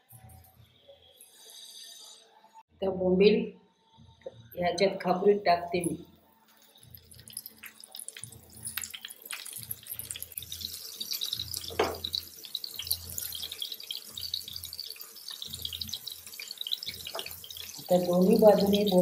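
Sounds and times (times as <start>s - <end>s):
fish frying in hot oil: 6.4s - 19.0s.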